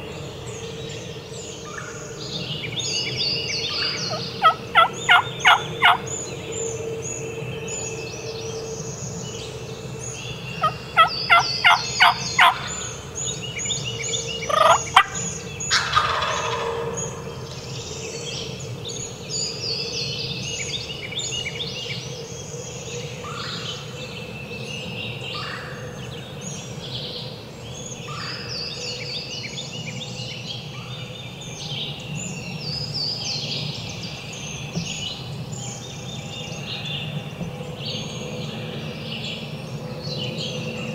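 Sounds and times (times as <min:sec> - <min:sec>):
songbirds chirping: 0:00.0 - 0:40.9
turkey gobbling: 0:03.7 - 0:06.0, 0:10.6 - 0:12.7, 0:14.5 - 0:17.2.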